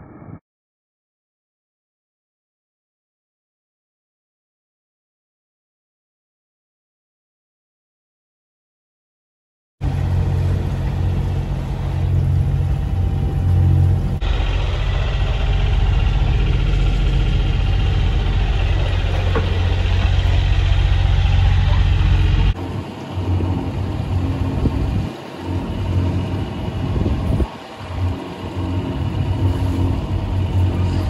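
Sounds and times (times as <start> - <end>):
boat engine drone: 9.8 - 31.0
wind: 9.8 - 31.0.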